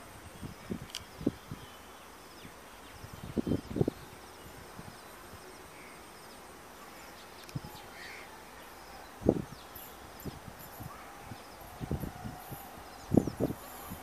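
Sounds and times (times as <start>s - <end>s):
insect calls: 0.0s - 14.0s
faint bird calls: 5.5s - 10.0s.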